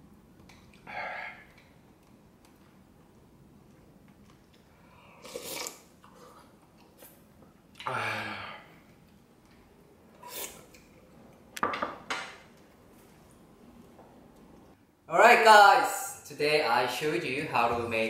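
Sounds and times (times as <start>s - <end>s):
person making tasting sound: 4.2s - 8.0s, 10.1s - 11.0s
slurping soup: 5.1s - 7.2s.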